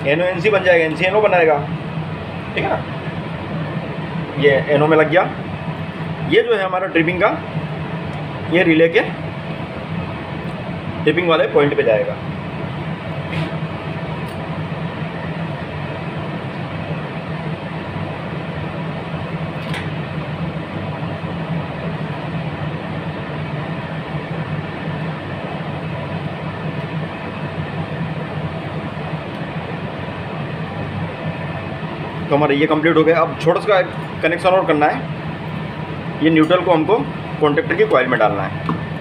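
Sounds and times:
low mechanical hum: 0.0 - 39.0.

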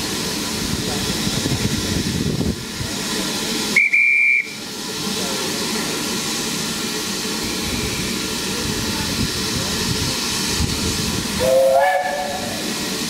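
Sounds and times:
steam locomotive hissing: 0.0 - 13.0
steam whistle blast: 3.8 - 4.6, 11.4 - 12.7.

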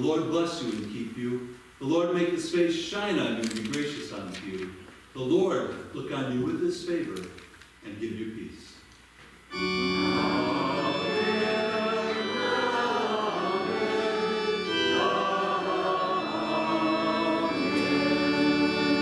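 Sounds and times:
church organ chords: 9.5 - 19.0.

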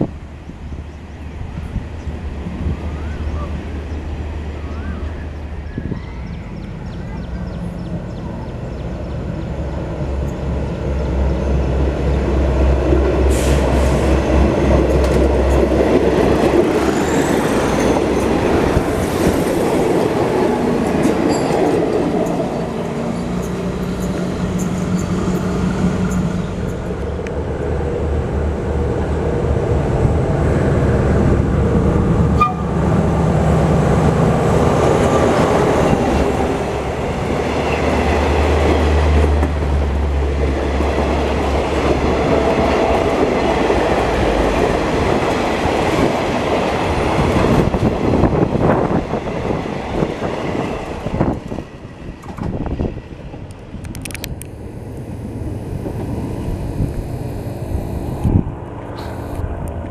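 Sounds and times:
diesel railcar engine humming: 0.0 - 59.9
passenger coaches rolling past: 0.0 - 59.9
train wheels clicking over rail joints: 50.8 - 54.5.

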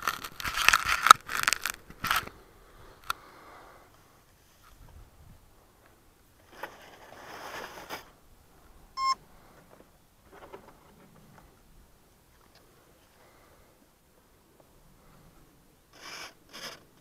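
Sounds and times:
dry grass and foam rustling: 0.0 - 3.0, 4.3 - 8.9
short electronic beep: 9.0 - 9.2.

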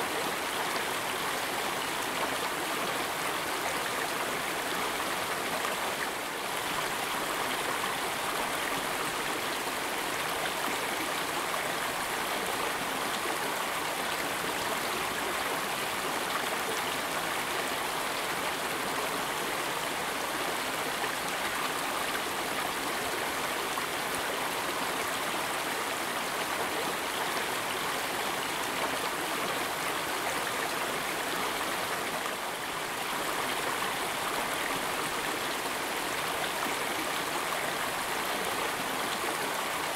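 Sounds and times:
stream flowing: 0.0 - 39.9.

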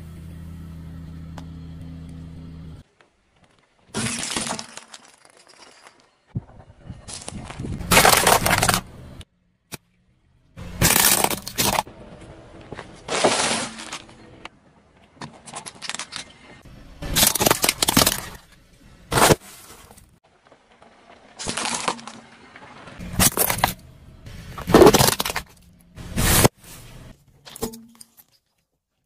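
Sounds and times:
plastic cracking under car tyre: 7.1 - 8.9, 24.6 - 25.6.

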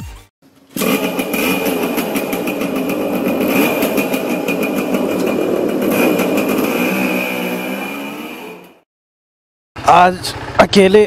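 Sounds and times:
motorcycle engine running: 0.4 - 8.8.

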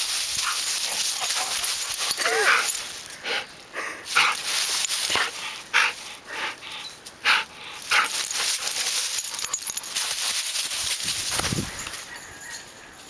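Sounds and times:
dry leaves rustling: 0.0 - 13.0
dog panting: 5.1 - 10.4.

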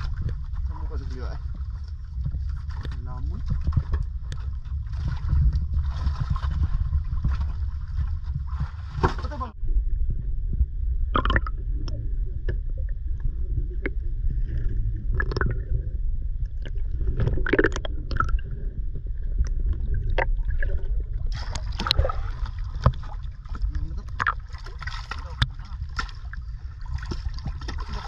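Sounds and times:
underwater rumble and gurgling: 0.0 - 28.0
water splashing: 13.8 - 28.0.

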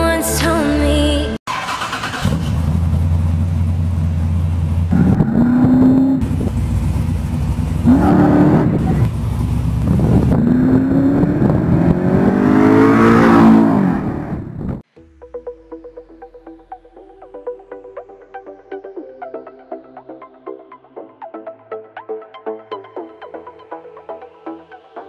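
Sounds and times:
truck engine idling and accelerating: 1.5 - 14.8.

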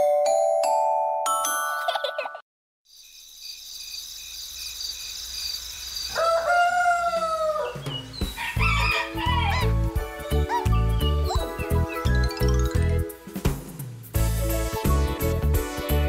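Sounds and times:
rooster crowing: 6.1 - 9.8
children's jingle with bass beat: 9.8 - 16.0.

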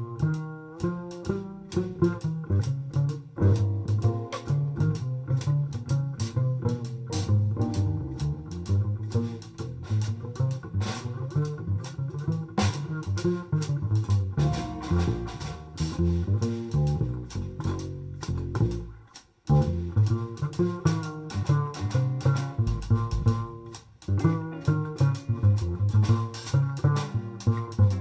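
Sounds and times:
bass: 0.0 - 28.0
drums keeping time: 0.0 - 28.0
jazz band playing: 0.0 - 28.0
guitar: 11.0 - 28.0.

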